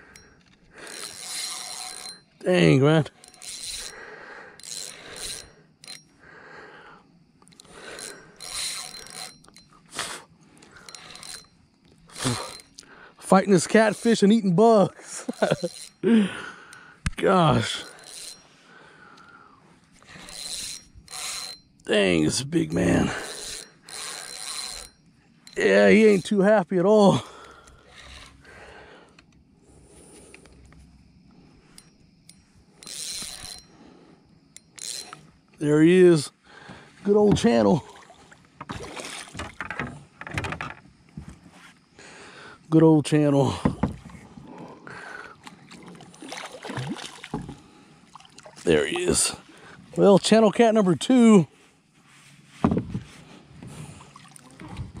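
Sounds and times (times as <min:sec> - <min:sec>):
spinning reel mechanical bursts: 0:00.1 - 0:06.1, 0:07.6 - 0:10.2, 0:10.8 - 0:14.4, 0:15.2 - 0:16.0, 0:17.4 - 0:18.6, 0:20.0 - 0:26.3, 0:27.8 - 0:28.4, 0:32.4 - 0:33.8, 0:34.6 - 0:35.8
faint ticks: 0:07.3 - 0:13.1, 0:15.3 - 0:21.9, 0:27.3 - 0:35.6.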